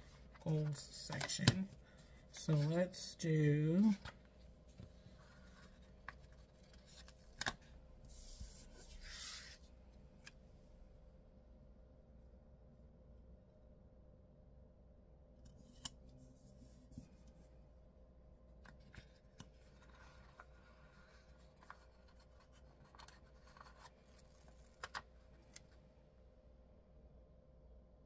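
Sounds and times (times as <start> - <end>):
paper rustling: 18.7 - 25.8.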